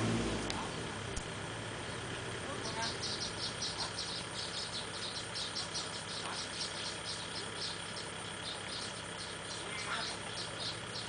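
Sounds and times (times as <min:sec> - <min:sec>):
tractor engines humming: 0:00.0 - 0:11.0
insect chirping: 0:01.5 - 0:11.0.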